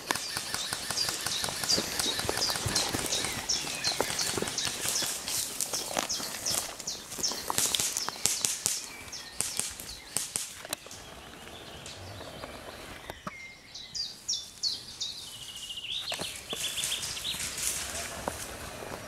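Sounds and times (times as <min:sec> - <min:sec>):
twigs snapping: 0:00.0 - 0:11.0
footsteps crunching on forest floor: 0:00.0 - 0:13.3, 0:14.4 - 0:19.0
songbird chirping and whistling: 0:00.1 - 0:17.6.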